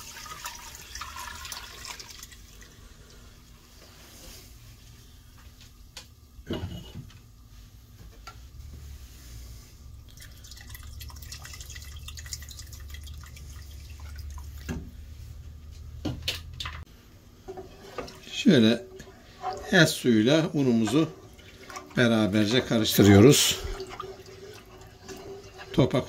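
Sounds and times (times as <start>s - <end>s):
broth dripping through a sieve: 0.0s - 4.6s, 8.8s - 15.5s.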